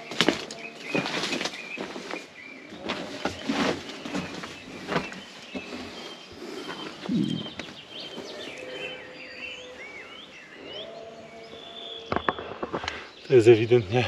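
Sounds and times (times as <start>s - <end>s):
footsteps on rubble: 0.0s - 8.6s
birds singing: 0.0s - 14.0s.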